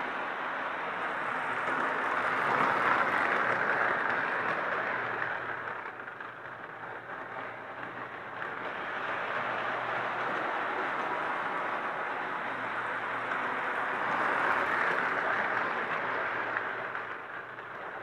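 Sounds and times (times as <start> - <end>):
toy train whirring on track: 0.0 - 18.0.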